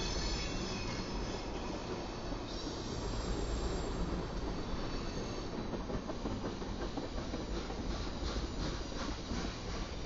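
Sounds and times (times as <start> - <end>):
steel wheels rumbling on rails: 0.0 - 10.0.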